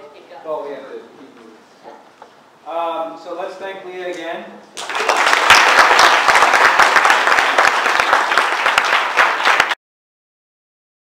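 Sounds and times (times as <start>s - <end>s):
audience applauding: 4.8s - 9.8s.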